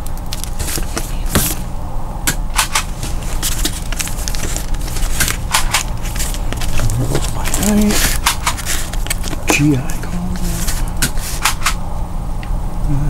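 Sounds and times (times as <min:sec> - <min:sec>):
plastic crinkles and rustles: 0:00.0 - 0:01.7, 0:02.9 - 0:11.5
low background hum: 0:00.0 - 0:13.0.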